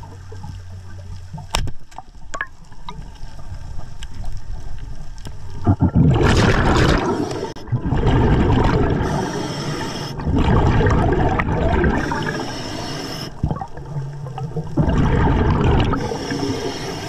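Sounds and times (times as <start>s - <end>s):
exhaled bubbles underwater: 5.5s - 17.0s
regulator inhales: 9.0s - 10.3s, 12.0s - 13.4s, 16.0s - 17.0s.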